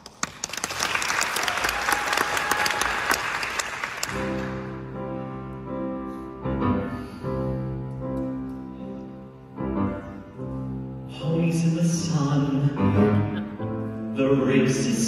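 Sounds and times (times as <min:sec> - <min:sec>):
small orchestra with piano: 0:04.0 - 0:15.0.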